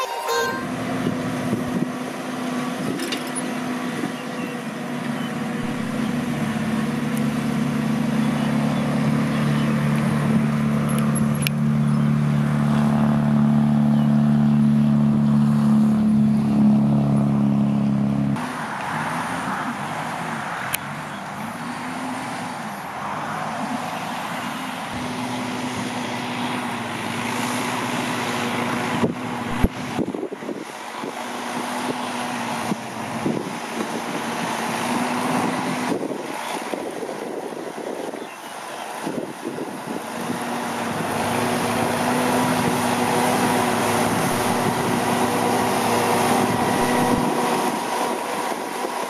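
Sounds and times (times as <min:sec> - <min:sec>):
tractor diesel engine running: 0:00.0 - 0:18.4, 0:38.9 - 0:49.0.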